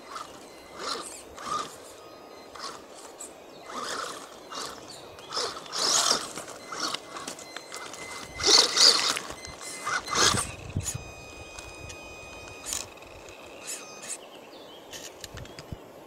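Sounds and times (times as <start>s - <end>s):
electric motor whining: 0.0s - 14.2s.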